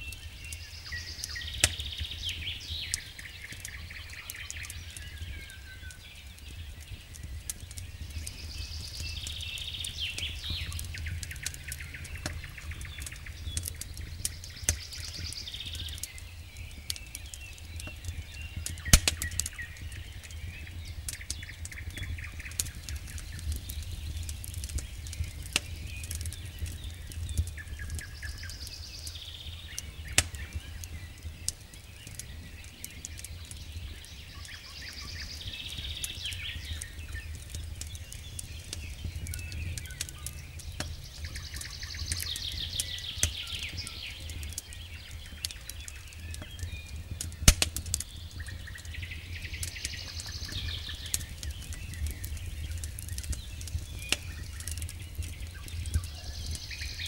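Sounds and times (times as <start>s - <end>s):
campfire crackling and popping: 0.0s - 57.0s
bird singing high phrases: 8.0s - 47.4s, 48.0s - 57.0s.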